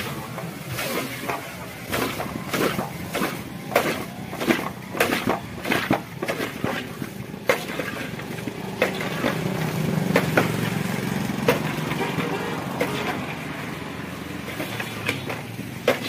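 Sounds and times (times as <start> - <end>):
steady engine hum: 0.0 - 16.0
metal spatula scraping steel pan: 11.5 - 13.5.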